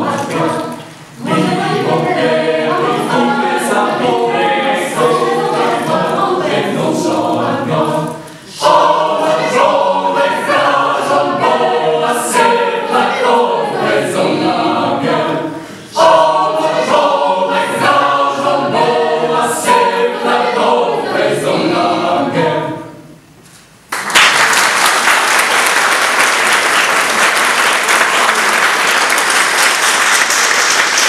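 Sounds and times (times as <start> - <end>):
mixed choir singing a cappella: 0.0 - 23.3
audience applause: 23.9 - 31.0.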